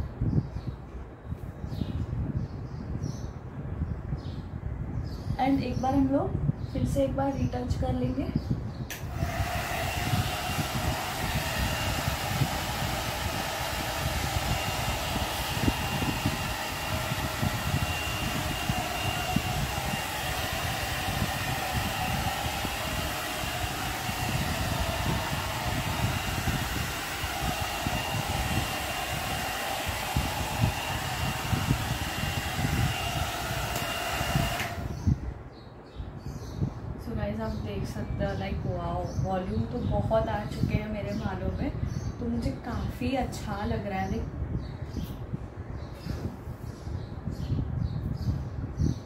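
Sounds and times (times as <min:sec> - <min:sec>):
hot-air brush dryer running: 0:08.9 - 0:35.2.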